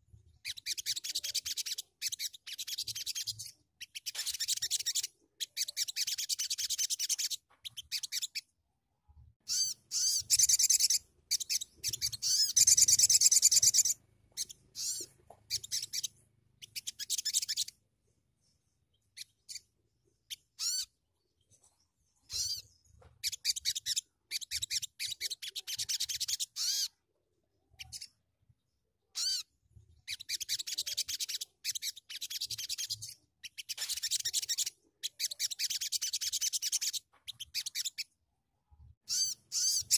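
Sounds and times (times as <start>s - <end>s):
songbird chattering trills: 9.5s - 17.7s.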